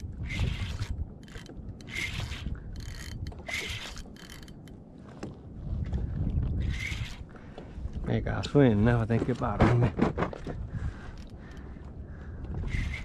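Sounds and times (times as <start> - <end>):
fishing reel drag buzzing: 0.2 - 4.7, 6.6 - 7.2, 12.6 - 13.0.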